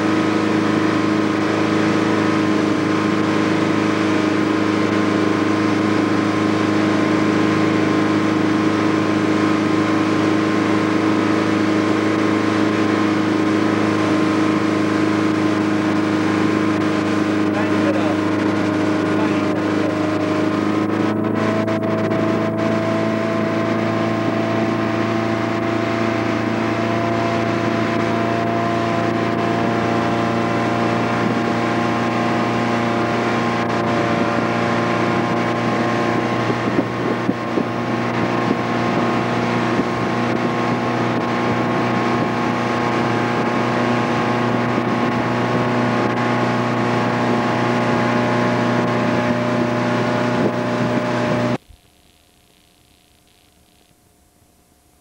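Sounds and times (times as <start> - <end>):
water rushing in wake: 0.0 - 51.6
motorboat engine running: 0.0 - 51.9
wind on microphone: 2.1 - 51.6.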